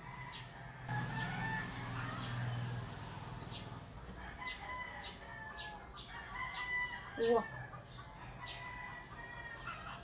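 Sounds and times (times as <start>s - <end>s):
bird calls: 0.0s - 10.0s.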